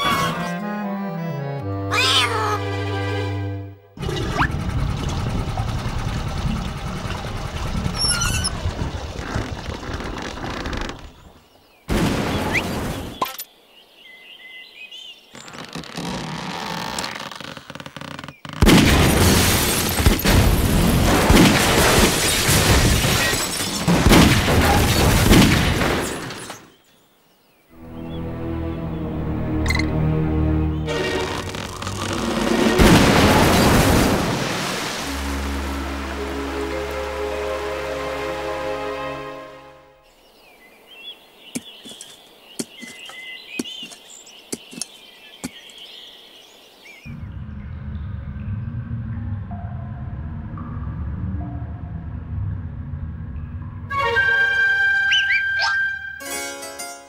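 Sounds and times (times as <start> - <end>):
birds chirping and twittering: 6.2 - 18.6, 26.2 - 32.5, 39.8 - 50.8
booms: 18.6 - 26.4, 32.2 - 34.6
low rumble: 47.1 - 53.9.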